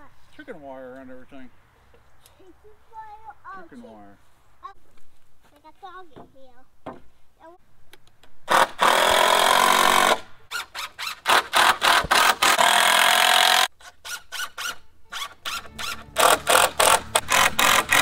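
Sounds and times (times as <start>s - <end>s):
power driver driving screws: 8.5s - 18.0s.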